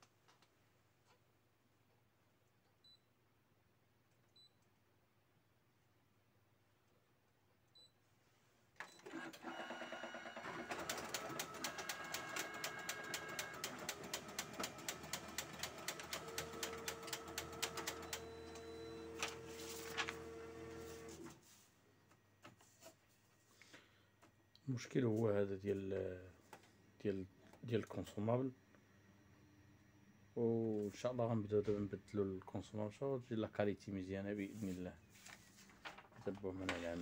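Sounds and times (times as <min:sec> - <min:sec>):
photocopier hum: 0:09.0 - 0:22.7
photocopier motors clicking: 0:09.1 - 0:21.3.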